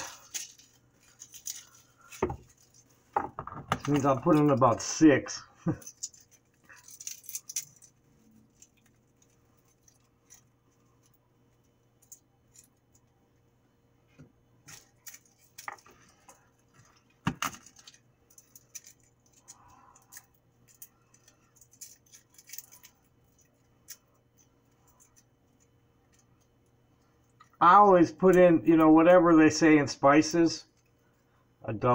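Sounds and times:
garlic skin crackling: 0.0s - 3.2s, 5.6s - 13.0s, 14.6s - 27.6s.

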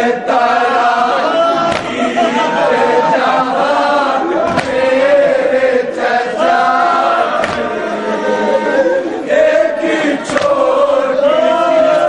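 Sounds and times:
men chanting in unison: 0.0s - 12.0s
hands slapping chests: 1.7s - 2.0s, 4.5s - 4.9s, 7.4s - 7.7s, 10.2s - 10.6s.

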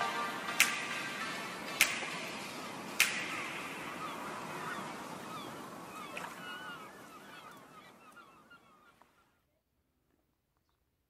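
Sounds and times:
steady hiss: 0.0s - 6.8s
bird chirps: 3.1s - 9.3s.

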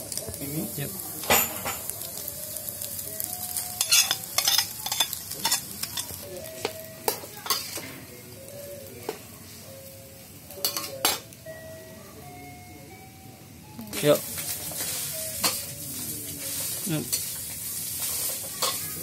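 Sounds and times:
frying sizzle: 0.0s - 19.0s
metal spatula scraping a wok: 16.5s - 19.0s.

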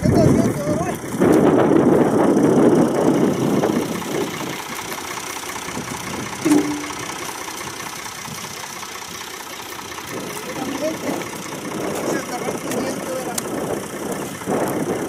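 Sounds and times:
diesel engine idling: 0.0s - 15.0s
short sharp sound: 6.4s - 7.1s.

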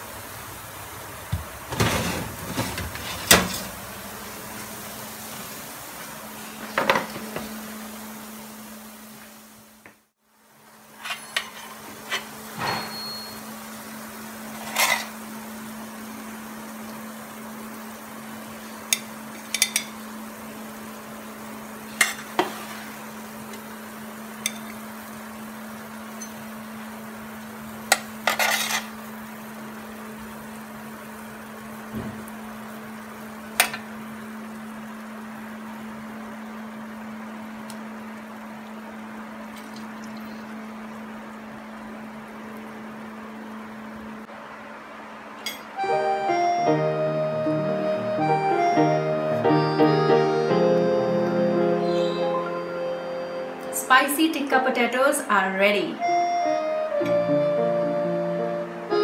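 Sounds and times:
oven door and rack clattering: 1.4s - 3.8s
spatula scraping metal tray: 1.7s - 3.7s, 28.3s - 28.9s.

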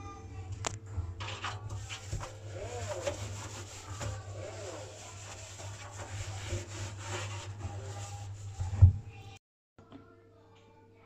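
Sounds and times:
scrubbing washing machine drum: 0.9s - 9.4s.

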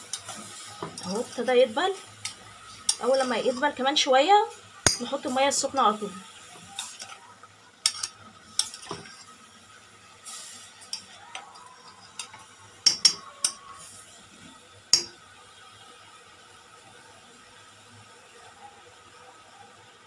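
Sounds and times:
metal spoon clinking in pot: 11.9s - 13.6s.

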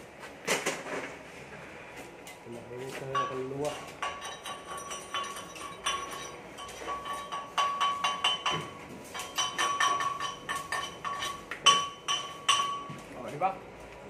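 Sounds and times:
metallic taps on steel pipe: 3.2s - 13.0s.

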